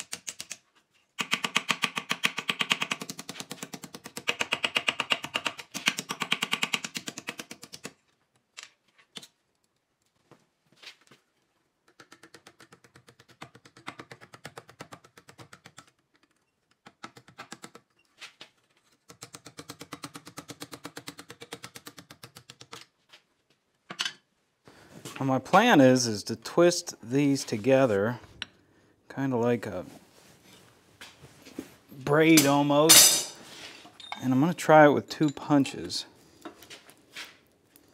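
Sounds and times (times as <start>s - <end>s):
hammer striking steel: 32.3s - 33.4s.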